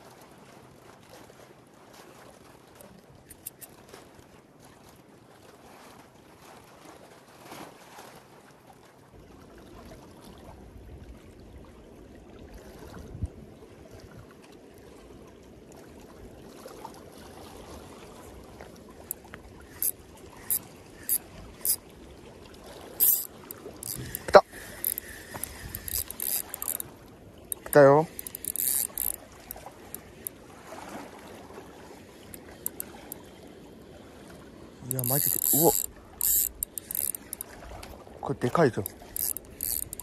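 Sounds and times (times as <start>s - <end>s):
water lapping among rocks: 0.0s - 10.6s, 11.6s - 39.9s
sharp high ticks: 19.1s - 21.8s, 23.0s - 26.9s, 27.5s - 30.4s, 32.3s - 32.9s, 34.9s - 37.4s, 38.8s - 40.0s.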